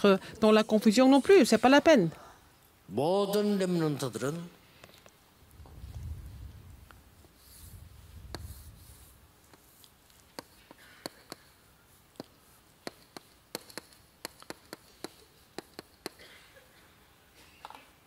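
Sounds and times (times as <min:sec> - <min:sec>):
chalk tapping and scraping: 0:07.2 - 0:16.2.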